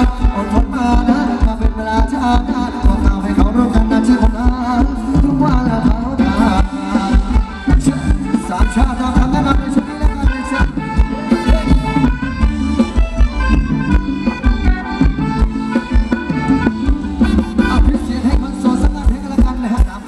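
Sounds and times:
driving drum beat: 0:00.0 - 0:20.0
sustained reedy melody: 0:06.2 - 0:19.2.

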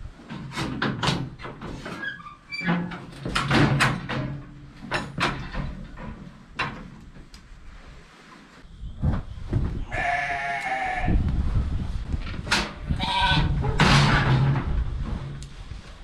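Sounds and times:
metal crate knocks and clanks: 0:02.6 - 0:07.0, 0:12.3 - 0:15.4.

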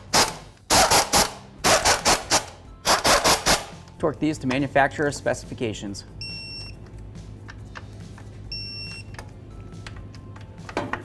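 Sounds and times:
torque wrench electronic beep: 0:06.2 - 0:06.8, 0:08.5 - 0:09.1.

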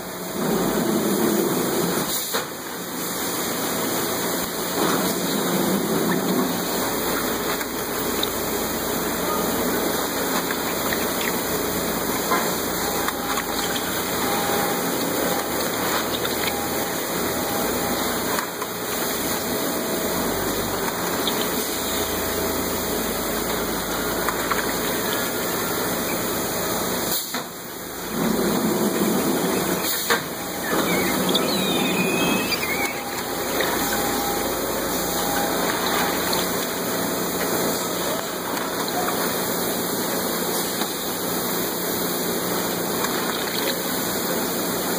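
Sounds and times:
palletizing machine rushing: 0:03.9 - 0:38.5.

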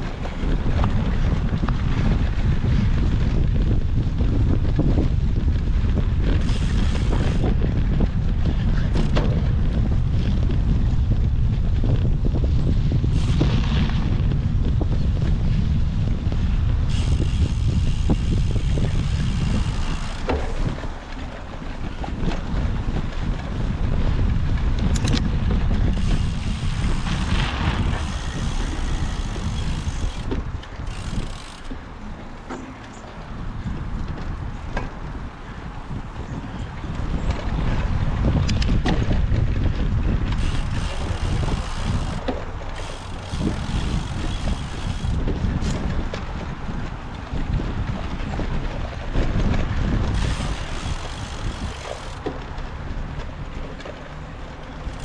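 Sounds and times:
bike clicks and rattles: 0:00.0 - 0:55.0
wind buffeting microphone: 0:00.0 - 0:55.0.

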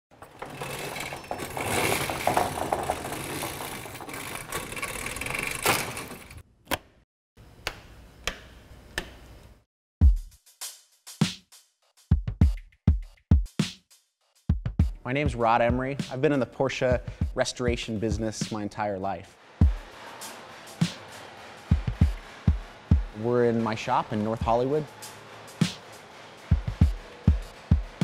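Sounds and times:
chain and door slats rattling: 0:00.1 - 0:06.4
music with electronic drum hits: 0:10.0 - 0:13.8, 0:14.5 - 0:16.1, 0:19.6 - 0:28.0.

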